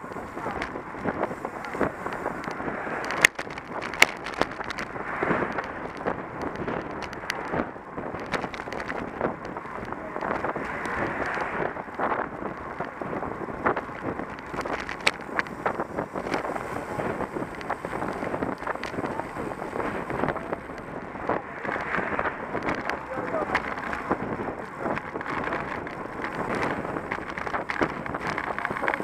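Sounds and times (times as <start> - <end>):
bike tyres hissing on asphalt: 0.0 - 29.0
wind buffeting microphone: 0.0 - 29.0
camera rattling clicks: 0.5 - 29.0.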